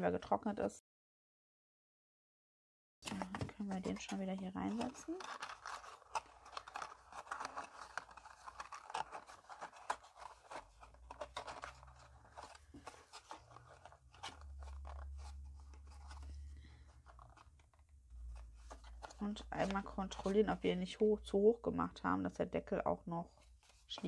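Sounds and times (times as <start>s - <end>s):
cardstock rustling and scraping: 3.1s - 21.0s.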